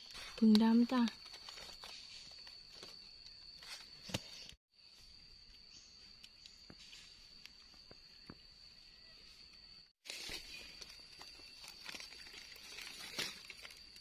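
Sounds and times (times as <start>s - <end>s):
leaf rustling: 0.0s - 4.5s, 10.0s - 14.0s.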